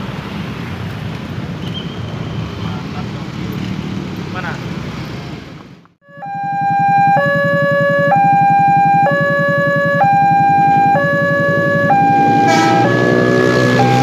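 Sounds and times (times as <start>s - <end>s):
level crossing alarm tones: 6.0s - 14.0s
approaching train: 6.2s - 14.0s.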